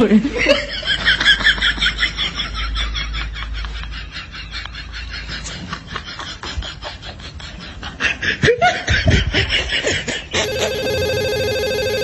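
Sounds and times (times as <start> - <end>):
phone ringtone: 10.4 - 12.0.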